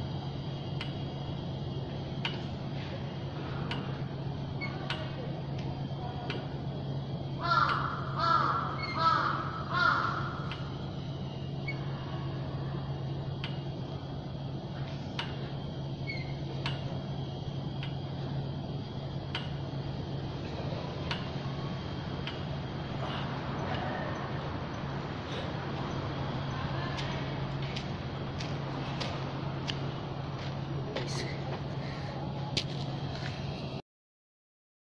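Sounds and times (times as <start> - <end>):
steady low hum: 0.0 - 33.8
crow cawing: 7.4 - 10.5.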